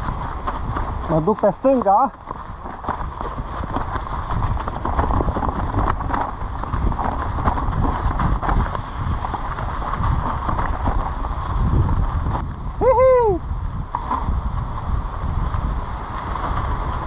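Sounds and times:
stones clattering under tyres: 0.0 - 12.6.

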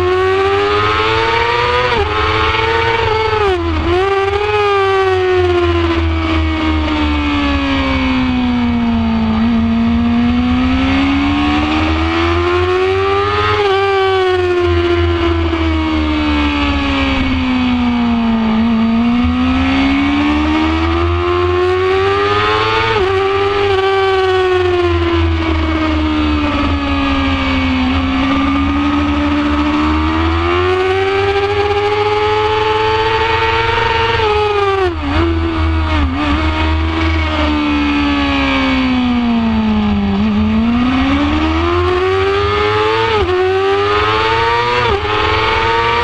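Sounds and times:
motorcycle engine revving: 0.0 - 46.0
wind rumble: 23.1 - 32.1.

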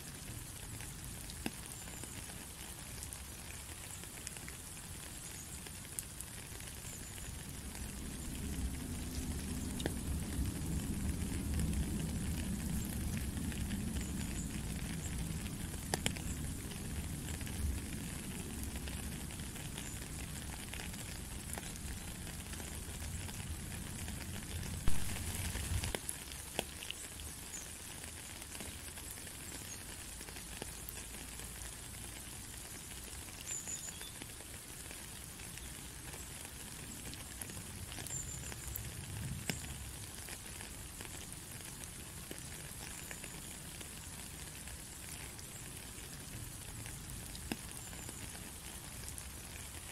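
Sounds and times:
rain hissing and pattering: 0.0 - 49.9.

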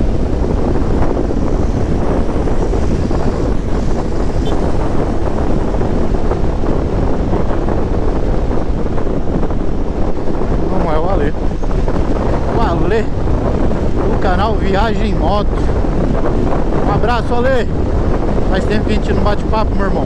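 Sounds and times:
motorcycle engine: 0.0 - 10.7
road noise: 0.0 - 20.0
wind buffeting microphone: 0.0 - 20.0.

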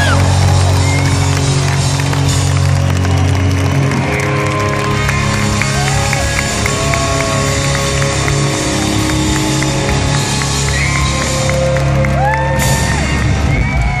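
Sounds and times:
crowd cheering and whooping: 0.0 - 14.0
live rock band playing: 0.0 - 14.0.

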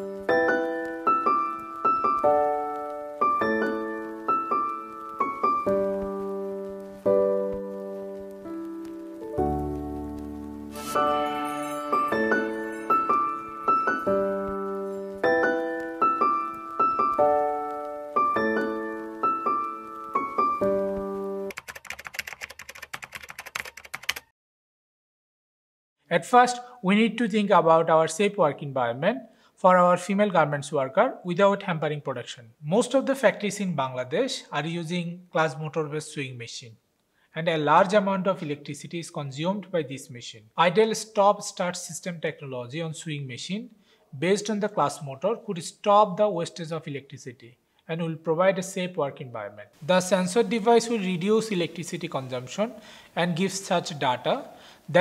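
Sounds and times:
slow gentle piano music: 0.0 - 21.5
keyboard typing clicks: 21.5 - 24.3.

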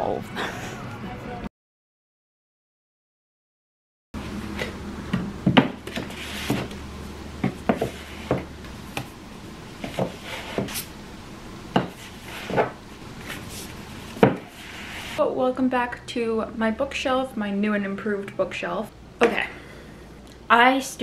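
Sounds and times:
books knocking on shelf: 5.1 - 6.7, 7.4 - 9.1, 11.7 - 12.8, 14.2 - 14.6
books rubbing and scraping: 5.8 - 6.8, 7.4 - 9.2, 9.8 - 10.9, 11.8 - 15.2.

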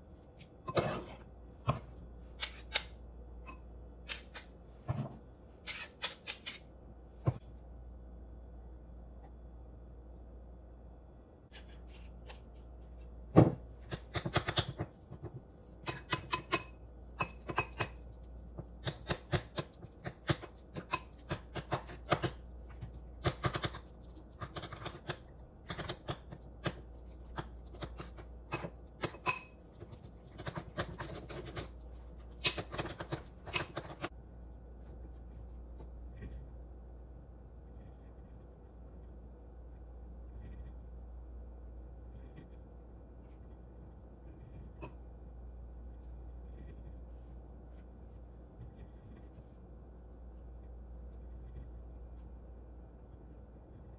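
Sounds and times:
metal spoon scraping ceramic bowl: 0.7 - 1.3, 15.8 - 18.0, 26.6 - 34.1.

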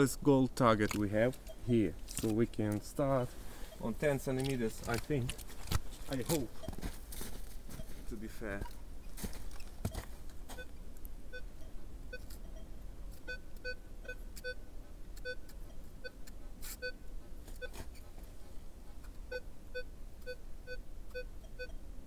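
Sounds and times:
metal detector short low beeps: 11.3 - 17.0, 19.3 - 21.8.

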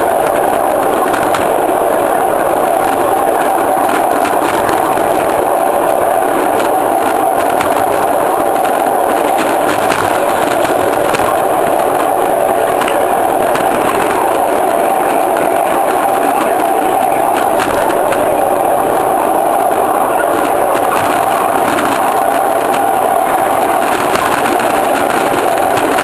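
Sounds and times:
faint clicks from rail joints: 0.0 - 26.0
train wheels rumbling on rails: 0.0 - 26.0.

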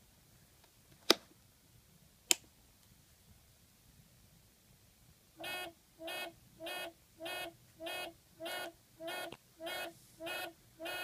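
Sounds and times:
low repeating buzzer beep: 5.4 - 11.0.

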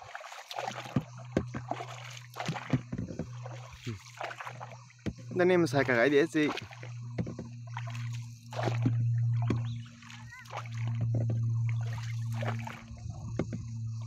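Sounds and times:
paddle splashing in water: 0.0 - 13.8
steady low hum: 0.1 - 14.0
knocks on boat: 0.8 - 4.0, 5.0 - 5.5, 6.5 - 9.9, 10.8 - 11.6, 12.4 - 13.8.

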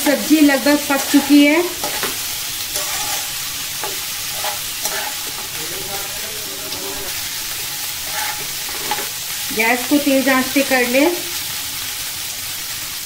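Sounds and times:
vegetables sizzling in hot oil: 0.0 - 13.0
metal spatula scraping a pan: 0.2 - 9.4.

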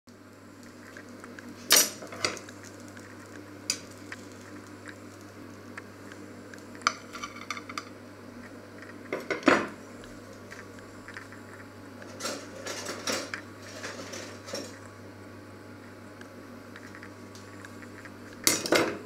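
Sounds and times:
metal tongs clinking on pan and plate: 6.9 - 7.8.

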